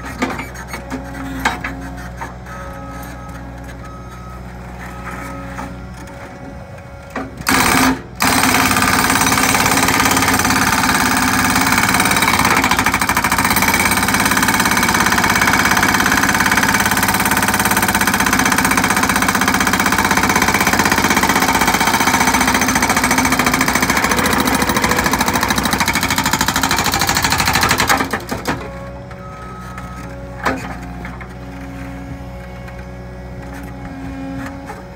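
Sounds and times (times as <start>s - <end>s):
hydraulic breaker hammering concrete: 7.4s - 28.6s.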